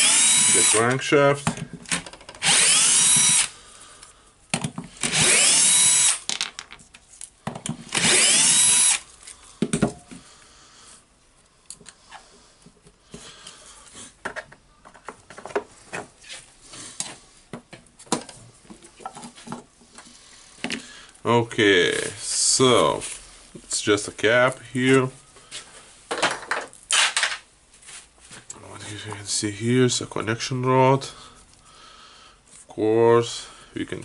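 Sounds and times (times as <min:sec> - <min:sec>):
cordless drill whine: 0:00.0 - 0:00.9, 0:02.4 - 0:03.5, 0:05.0 - 0:06.2, 0:07.9 - 0:09.1.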